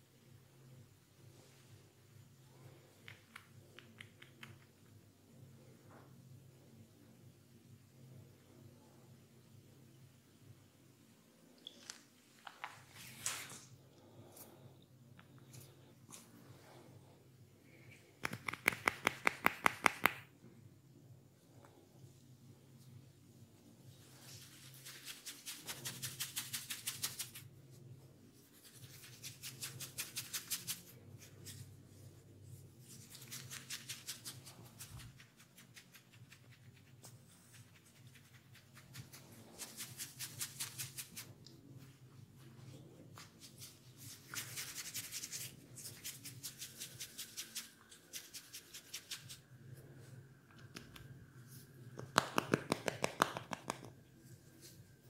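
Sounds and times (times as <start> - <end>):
fingers rubbing over ear and hair: 17.7 - 20.3, 23.9 - 49.9, 50.5 - 55.0.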